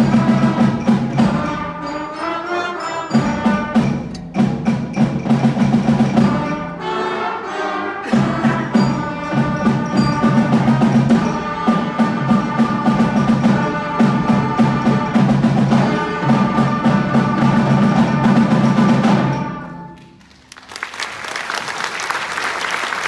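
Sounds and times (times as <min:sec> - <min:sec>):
concert band playing: 0:00.0 - 0:20.4
audience applause: 0:20.2 - 0:23.0.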